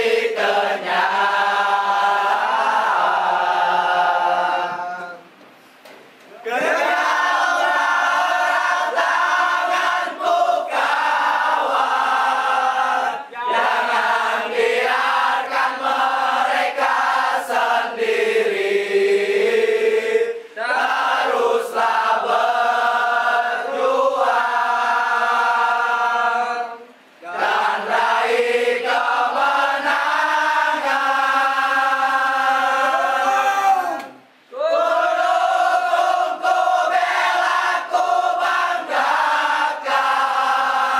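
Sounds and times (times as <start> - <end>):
crowd singing a chant: 0.0 - 5.2, 6.4 - 33.4, 34.7 - 40.9.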